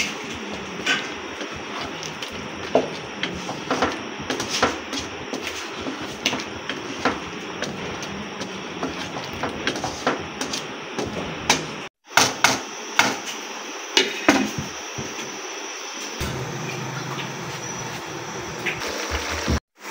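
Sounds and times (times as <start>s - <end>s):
spatula scraping a wok: 0.0s - 11.8s.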